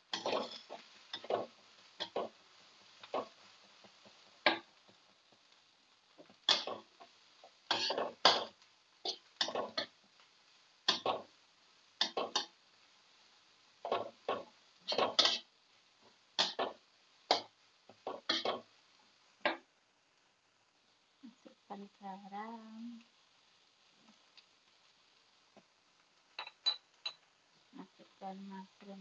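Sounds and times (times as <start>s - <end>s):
metal spatula scraping a wok: 0.1s - 3.5s, 7.7s - 10.0s, 13.8s - 15.5s.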